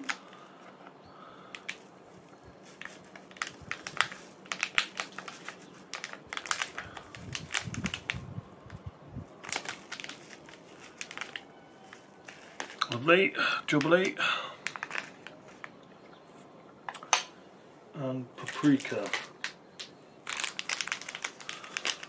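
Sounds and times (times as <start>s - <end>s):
plastic packets crinkling: 2.6s - 8.8s, 9.4s - 13.0s, 13.7s - 15.8s, 18.4s - 22.0s.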